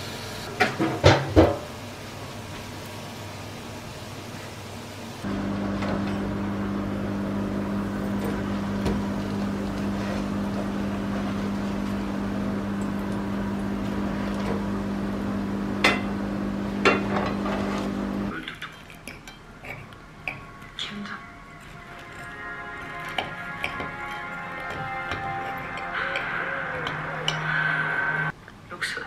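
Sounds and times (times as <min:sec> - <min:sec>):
electrical appliance hum: 0:00.0 - 0:18.7
crockery clinking: 0:18.6 - 0:20.8, 0:21.6 - 0:27.6.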